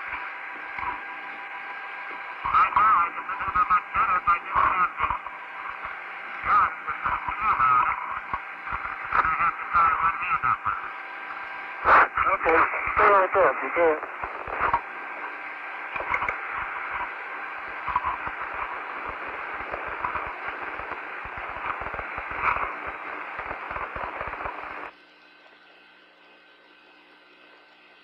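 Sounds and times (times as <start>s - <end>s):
crackles and clicks: 0.0s - 1.2s, 7.1s - 9.7s, 11.2s - 24.9s
radio static hiss: 0.0s - 25.0s.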